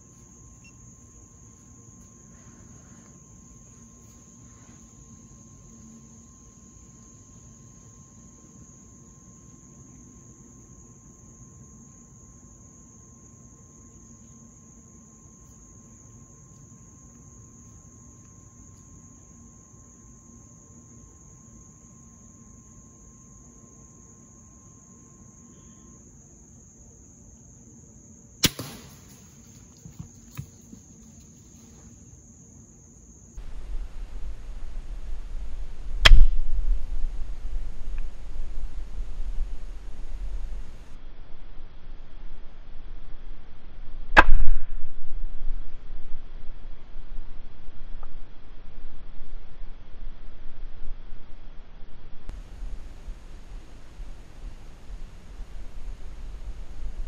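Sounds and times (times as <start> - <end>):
insect chorus: 0.0 - 57.0
crossbow firing snap: 28.4 - 29.3, 36.0 - 36.6, 44.2 - 44.8.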